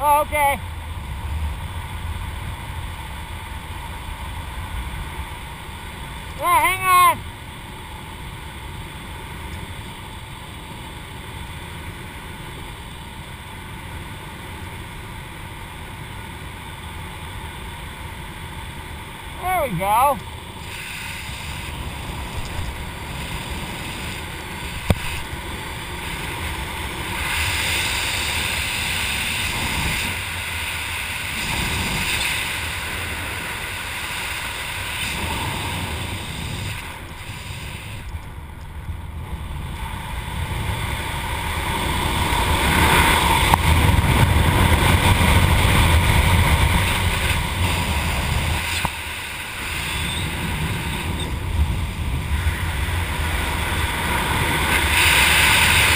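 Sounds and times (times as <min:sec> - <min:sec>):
wind rushing over microphone: 0:19.2 - 0:55.9.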